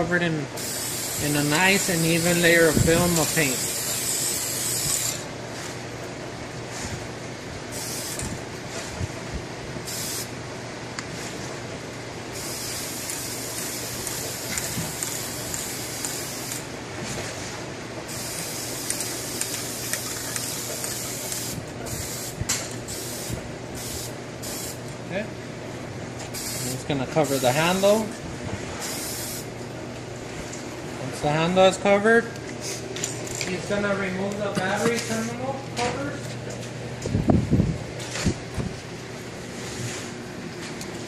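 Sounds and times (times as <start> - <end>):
steady low hum: 0.0 - 41.0
spray can hissing: 0.6 - 2.4, 3.1 - 5.2, 7.7 - 8.3, 9.9 - 10.3, 12.4 - 16.6, 18.1 - 24.8, 26.3 - 27.8, 28.8 - 29.5.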